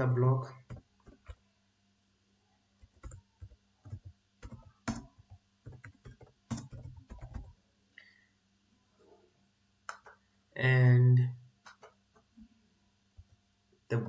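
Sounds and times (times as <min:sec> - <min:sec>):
typing on keyboard: 0:00.6 - 0:01.4, 0:02.8 - 0:07.6.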